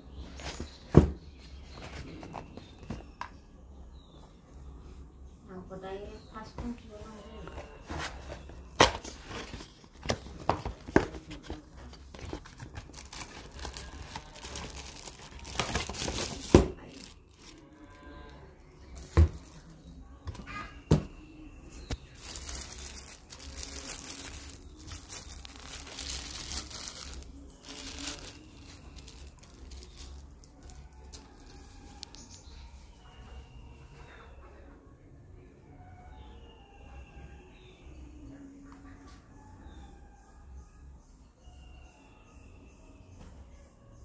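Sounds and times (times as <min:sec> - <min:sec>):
cardboard box handled: 0:07.5 - 0:17.6
plastic bag crinkling: 0:08.2 - 0:17.9, 0:18.9 - 0:19.8, 0:21.8 - 0:32.2.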